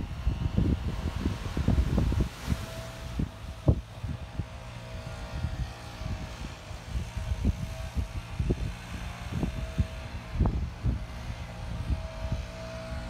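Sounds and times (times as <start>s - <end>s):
distant engine drone: 0.0s - 13.0s
wind buffeting microphone: 0.0s - 13.0s.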